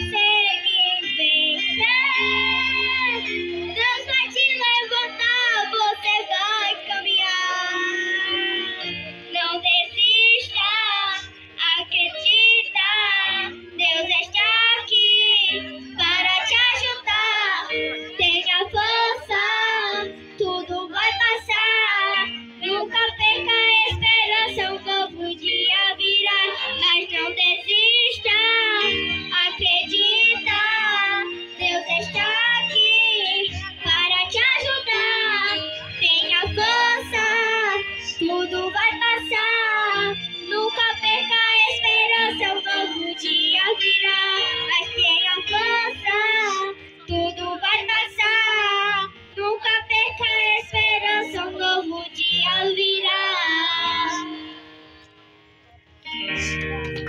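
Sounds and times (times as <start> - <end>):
backing music with bass: 56.1 - 57.0.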